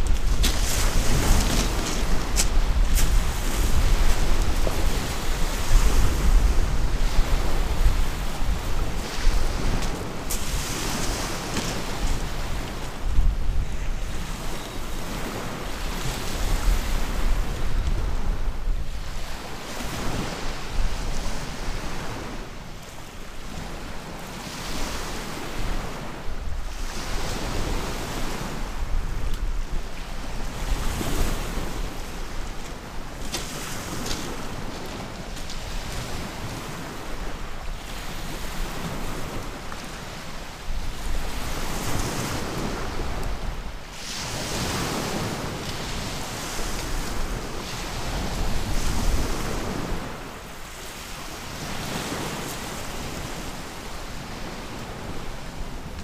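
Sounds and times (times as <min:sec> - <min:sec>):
wind buffeting microphone: 0:00.0 - 0:22.5, 0:23.4 - 0:56.0
waves breaking on pebble beach: 0:00.0 - 0:56.0.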